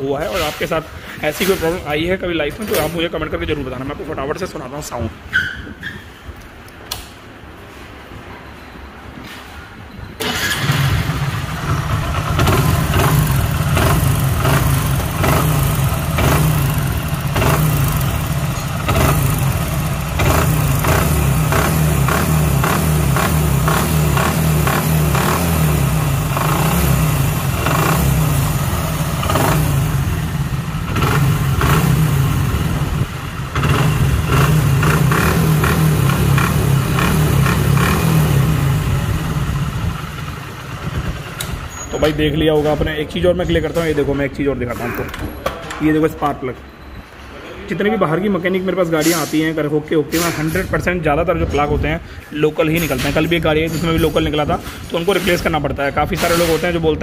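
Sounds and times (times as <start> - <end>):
motorcycle engine revving: 10.2 - 41.7.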